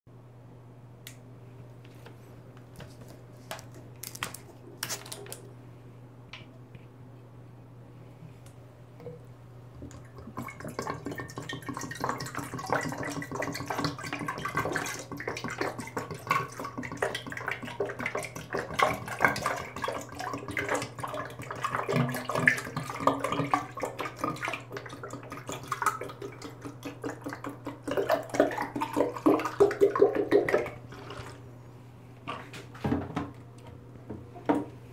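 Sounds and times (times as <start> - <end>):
juice glugging into a glass carafe: 9.8 - 31.5.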